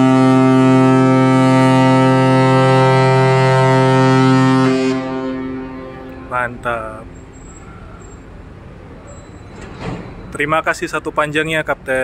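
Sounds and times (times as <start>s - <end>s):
ship's horn blast: 0.0s - 8.6s.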